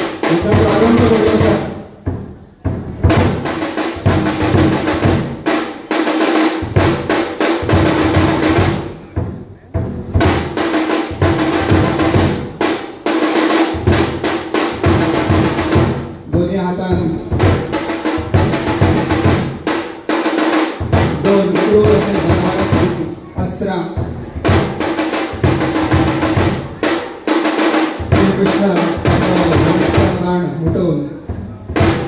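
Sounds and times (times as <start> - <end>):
fast drumming with drum rolls: 0.0 - 32.0.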